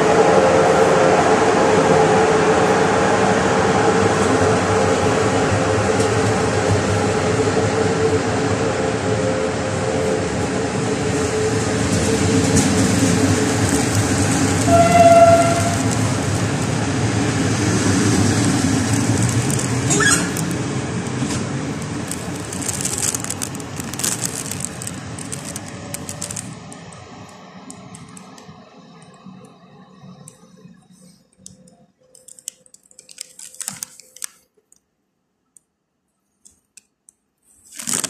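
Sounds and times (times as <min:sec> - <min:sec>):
train coaches rumbling on rails: 0:00.0 - 0:31.2
wheels clicking over rail joints: 0:11.1 - 0:34.4.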